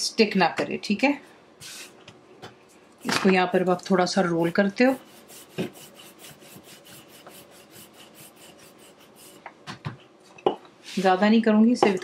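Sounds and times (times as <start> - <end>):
rolling pin scraping on board: 3.0 - 10.0.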